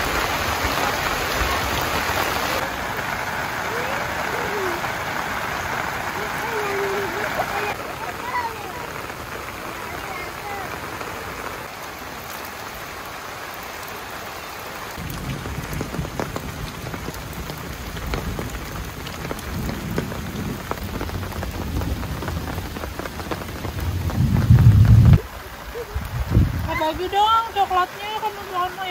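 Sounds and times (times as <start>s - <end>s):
rain pattering: 0.0s - 28.9s
low rumble: 23.7s - 26.7s.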